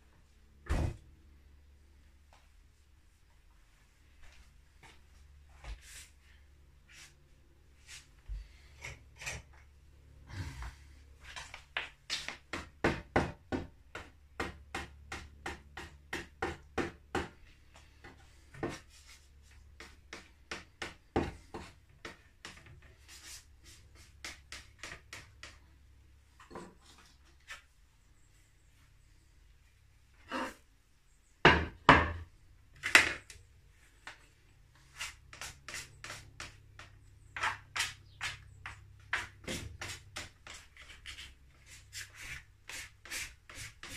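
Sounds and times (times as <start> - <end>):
spatula tapping and scraping on wood: 19.6 - 22.9, 23.6 - 25.7, 35.0 - 41.4.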